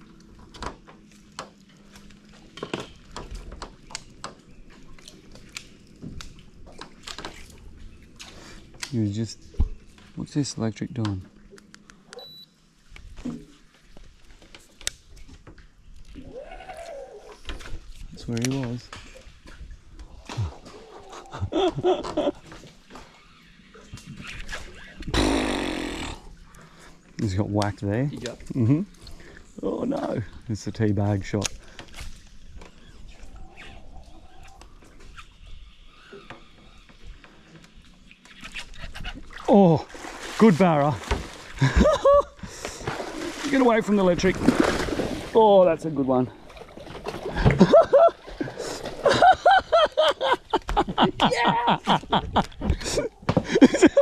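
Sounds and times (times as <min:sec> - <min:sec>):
fishing reel buzzing: 0:24.7 - 0:26.3
fish splashing at water surface: 0:42.7 - 0:45.4.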